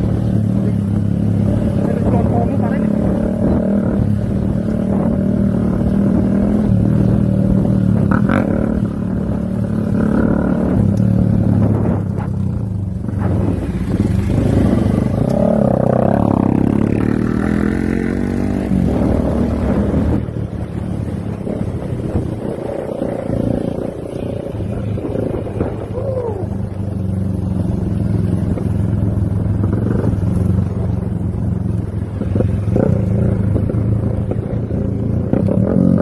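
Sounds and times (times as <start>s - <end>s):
motorcycle engine revving: 0.0s - 36.0s.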